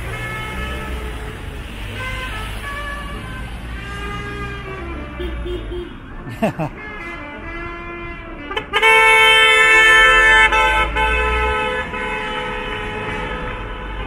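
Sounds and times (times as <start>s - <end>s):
traffic going by: 0.0s - 14.0s
car horn blast: 6.7s - 14.0s.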